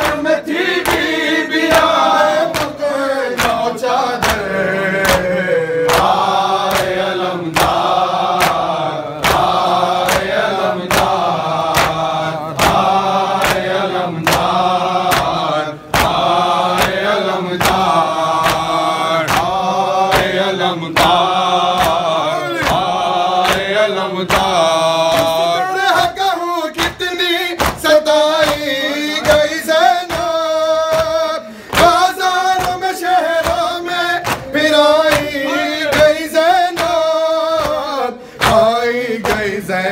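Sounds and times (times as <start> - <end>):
men chanting in chorus: 0.0 - 39.9
rhythmic chest-beating: 0.0 - 39.9.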